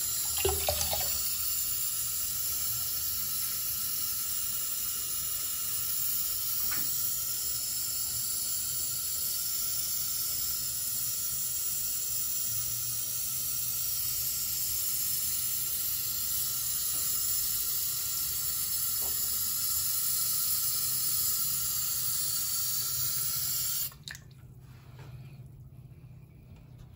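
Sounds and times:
tap water running into sink: 0:00.0 - 0:01.6.

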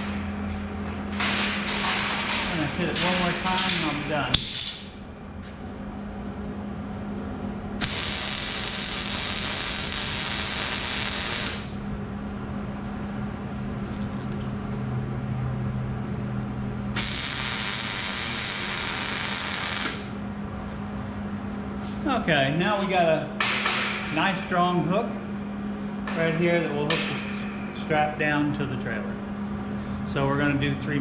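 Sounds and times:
steady low hum: 0:00.0 - 0:31.0
sizzling welding arc crackle: 0:01.2 - 0:04.4, 0:07.8 - 0:11.9, 0:16.9 - 0:20.2.

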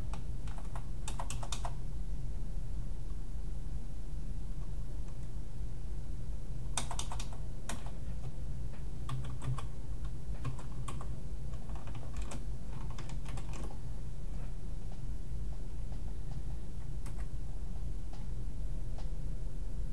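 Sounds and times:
steady low hum: 0:00.0 - 0:19.9
keyboard typing: 0:00.1 - 0:01.8, 0:06.8 - 0:08.4, 0:09.0 - 0:13.8, 0:16.3 - 0:17.4.

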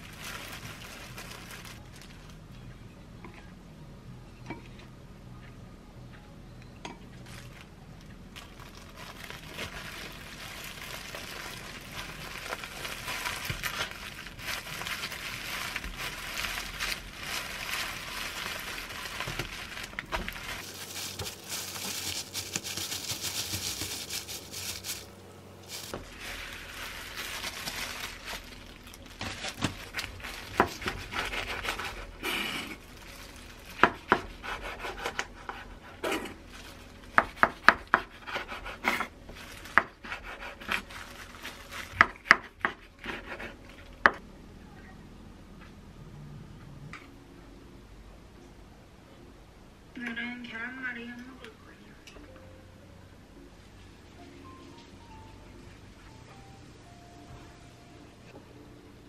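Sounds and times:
plastic and bamboo rustling: 0:00.0 - 0:02.6, 0:07.2 - 0:44.0.

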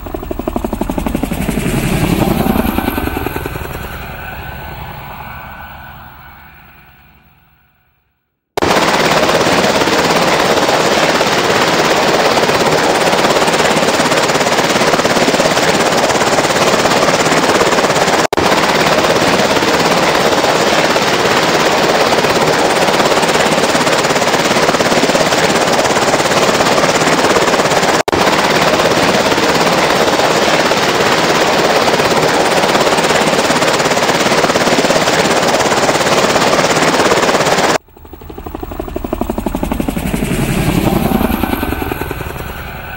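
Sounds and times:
aircraft engines and rotors running: 0:00.0 - 0:07.9, 0:08.6 - 0:42.9.

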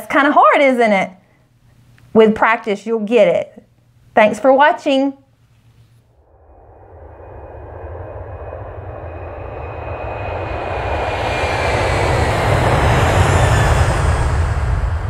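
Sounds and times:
deep rumble: 0:06.0 - 0:15.0
rushing roar: 0:06.2 - 0:15.0.

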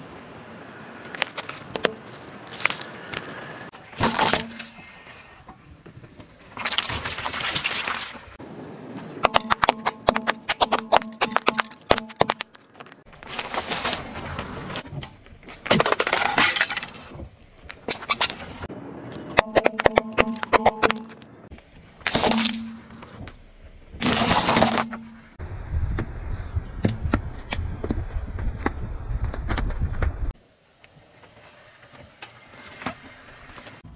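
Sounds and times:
crunching: 0:01.1 - 0:03.4, 0:09.2 - 0:14.8
low rumble: 0:25.3 - 0:30.3.

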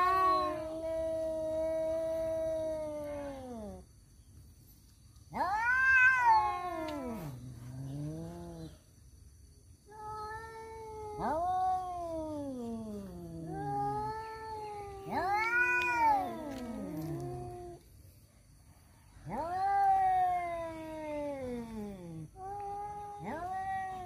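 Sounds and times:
cats yowling: 0:00.0 - 0:03.8, 0:05.3 - 0:08.8, 0:09.9 - 0:17.8, 0:19.2 - 0:24.0.

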